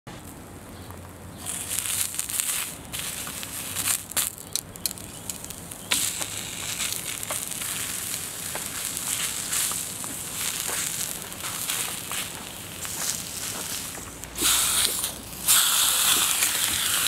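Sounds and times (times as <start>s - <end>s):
onions sizzling on griddle: 0.2s - 17.0s.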